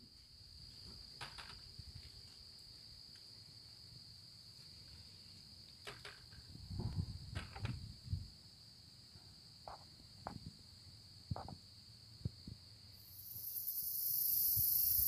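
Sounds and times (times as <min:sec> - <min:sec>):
insect trilling: 0:13.0 - 0:15.0.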